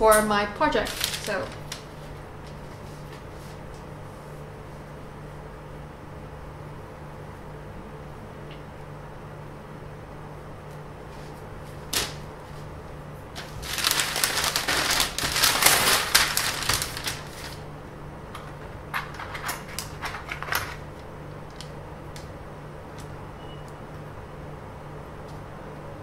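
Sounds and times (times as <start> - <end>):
low steady hum: 0.0 - 26.0
paper rustling and crackling: 0.6 - 3.6, 11.2 - 12.7, 13.3 - 17.7.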